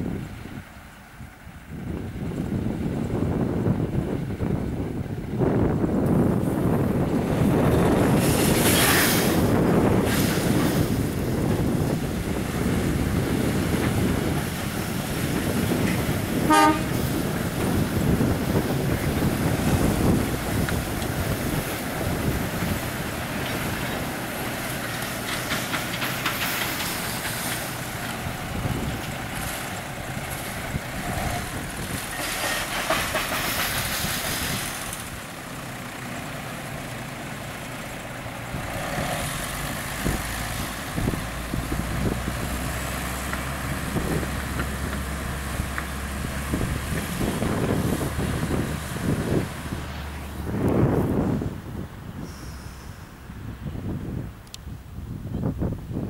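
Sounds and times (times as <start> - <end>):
diesel locomotive engines: 0.0 - 56.0
bins rattling along track: 2.0 - 51.5
locomotive horn toot: 16.4 - 17.2.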